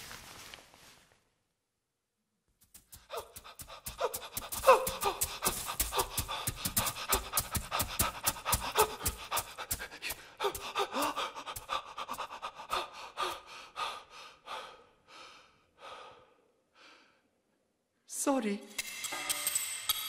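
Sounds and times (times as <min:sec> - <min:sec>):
rapid panting breaths: 0:02.8 - 0:17.1
sliding vocal gasps: 0:03.0 - 0:16.4.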